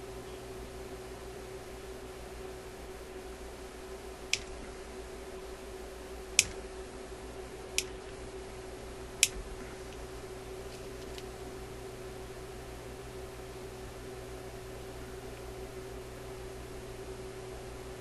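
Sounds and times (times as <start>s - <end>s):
steady hum: 0.0s - 18.0s
pliers clicking shut: 6.4s - 6.6s.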